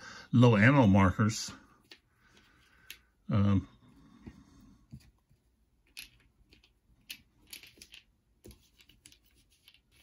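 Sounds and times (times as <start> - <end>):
cardboard counters clicking: 5.8 - 10.0.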